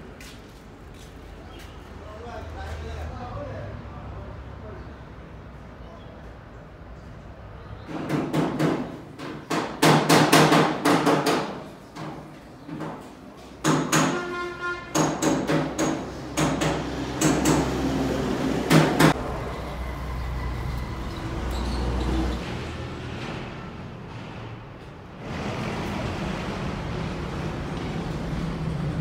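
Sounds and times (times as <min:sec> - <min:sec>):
hammer striking metal: 0:14.9 - 0:17.8.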